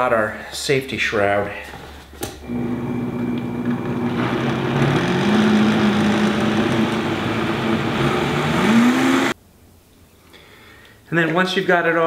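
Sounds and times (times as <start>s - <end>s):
blender motor whirring: 2.4s - 9.4s
liquid churning: 4.2s - 7.8s.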